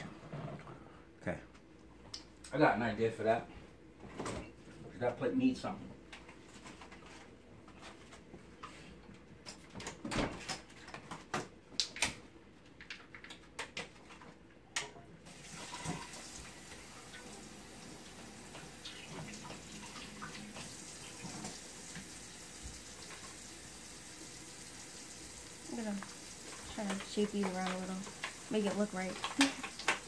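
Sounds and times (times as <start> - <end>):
running tap water: 15.3 - 30.0
crisp clicks and crackles: 26.5 - 30.0.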